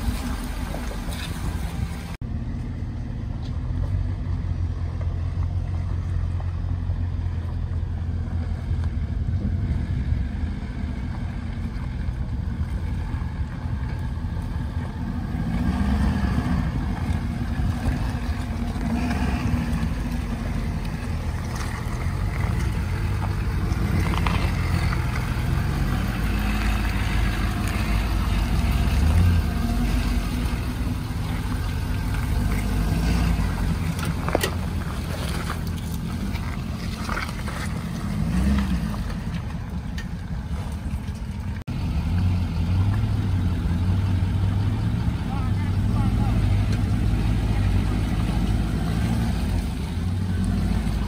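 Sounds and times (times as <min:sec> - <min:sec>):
diesel truck engine rumbling: 0:00.0 - 0:51.0.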